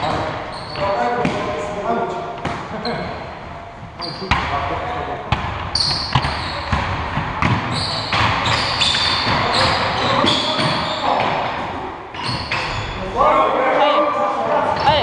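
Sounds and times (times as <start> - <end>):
sneaker squeaks on hardwood: 0.0 - 1.4, 4.0 - 4.4, 5.6 - 11.5, 12.1 - 13.0, 14.8 - 15.0
basketball bouncing on floor: 5.3 - 11.4.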